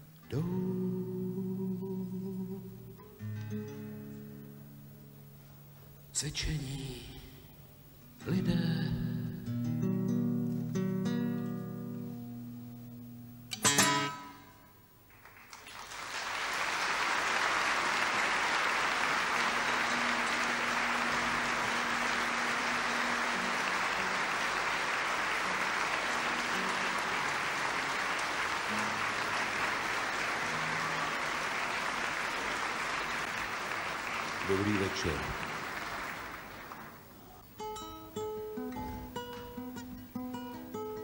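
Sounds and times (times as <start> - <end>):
large audience applauding: 15.0 - 37.4.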